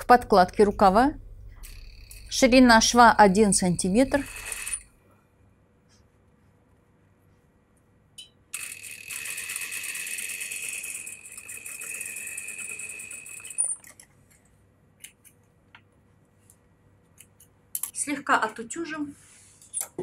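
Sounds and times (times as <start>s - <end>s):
sewing machine whining: 1.6s - 4.9s, 8.6s - 13.9s.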